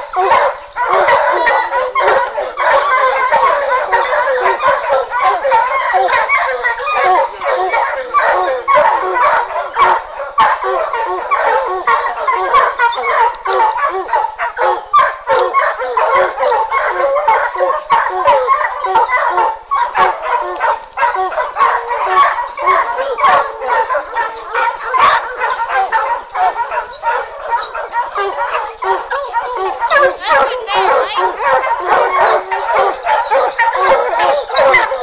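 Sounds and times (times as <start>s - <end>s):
hounds barking and baying: 0.0s - 35.0s.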